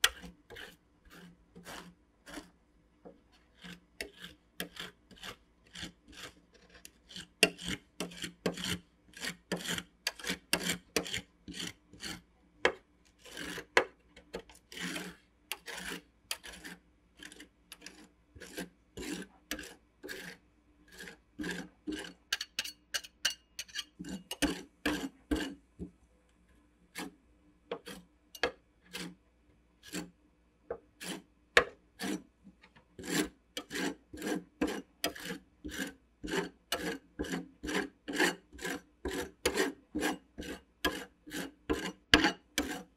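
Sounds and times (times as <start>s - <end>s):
metal spatulas scraping steel plate: 0.0s - 2.5s, 3.6s - 6.3s, 7.1s - 12.2s, 13.2s - 13.7s, 14.7s - 25.6s, 27.8s - 29.2s, 31.0s - 32.2s, 33.0s - 42.9s.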